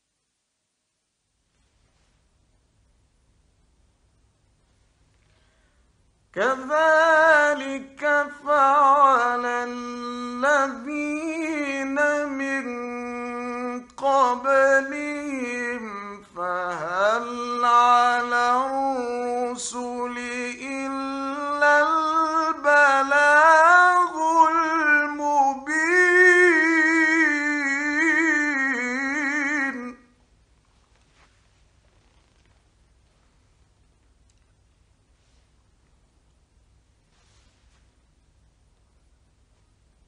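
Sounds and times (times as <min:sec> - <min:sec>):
man chanting melodically: 0:06.3 - 0:30.2.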